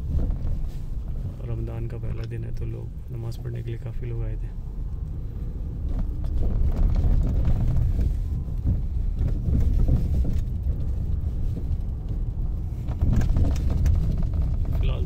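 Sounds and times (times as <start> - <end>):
car engine and tyre rumble: 0.0 - 15.0.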